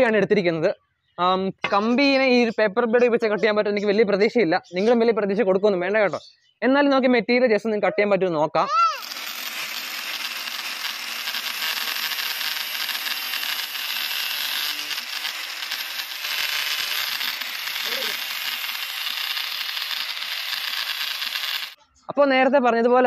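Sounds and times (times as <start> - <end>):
angle grinder grinding steel rod: 9.0 - 21.8.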